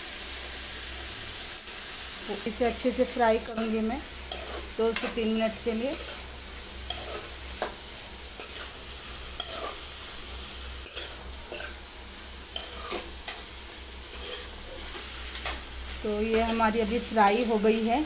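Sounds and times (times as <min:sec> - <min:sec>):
vegetables sizzling in oil: 0:00.0 - 0:18.0
metal spoon scraping a pan: 0:02.4 - 0:17.8.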